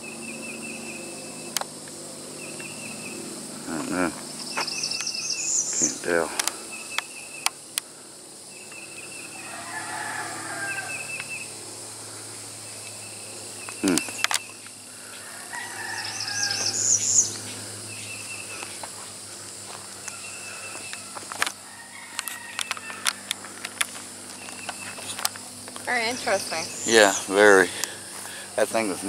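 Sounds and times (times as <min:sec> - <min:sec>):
insects trilling: 0:00.0 - 0:29.0
rooster crowing: 0:09.0 - 0:11.5, 0:14.9 - 0:17.8, 0:19.5 - 0:23.5.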